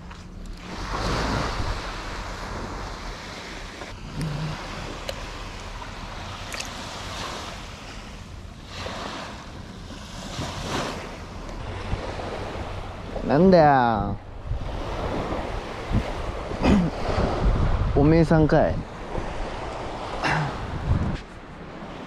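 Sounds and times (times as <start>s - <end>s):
surf washing up beach: 0.6s - 22.0s
wind buffeting microphone: 9.6s - 22.0s.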